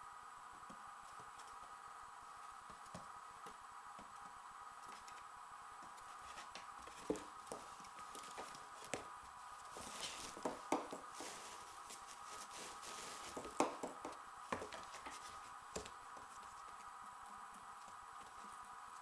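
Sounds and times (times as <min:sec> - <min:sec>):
faint steady hum: 0:00.0 - 0:19.0
kitten scratching in cardboard box: 0:11.1 - 0:13.6.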